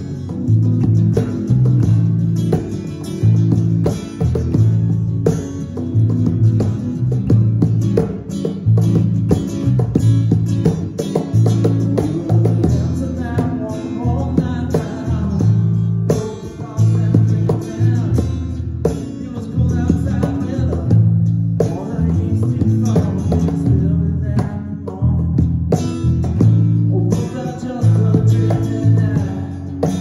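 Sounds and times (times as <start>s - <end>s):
acoustic guitar: 0.0s - 30.0s
cajon beat: 0.0s - 30.0s
electric bass guitar: 0.0s - 30.0s
person singing: 11.6s - 18.4s.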